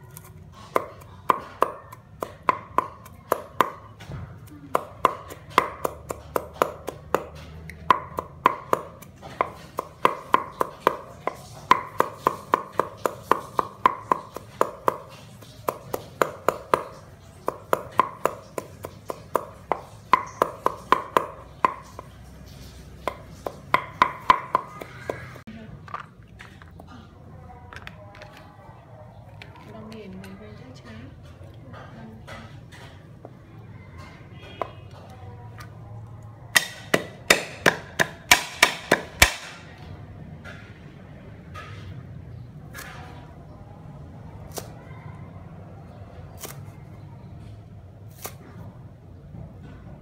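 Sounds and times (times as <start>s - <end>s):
knife chopping on wooden board: 0.6s - 4.1s, 4.7s - 22.2s, 23.0s - 25.4s, 36.6s - 39.6s.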